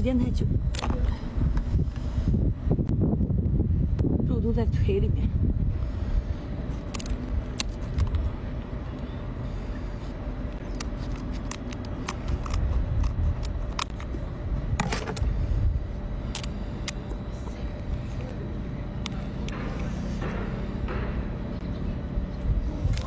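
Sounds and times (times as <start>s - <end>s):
steady low rumble: 0.0s - 23.0s
scissors cracking crab shell: 10.8s - 14.1s, 16.3s - 17.0s.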